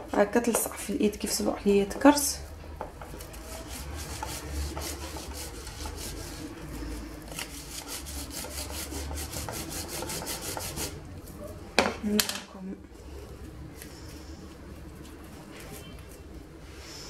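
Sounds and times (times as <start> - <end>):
dough rasping on metal grater: 3.1 - 11.0.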